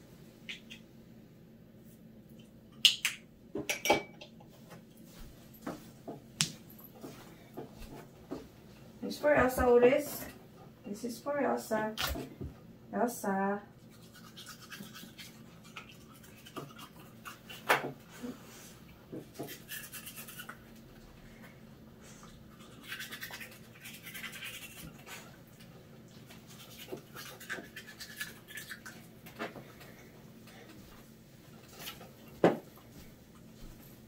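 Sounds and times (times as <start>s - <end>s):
toothbrush bristles scrubbing: 13.8s - 17.6s, 18.7s - 20.8s, 22.2s - 29.2s.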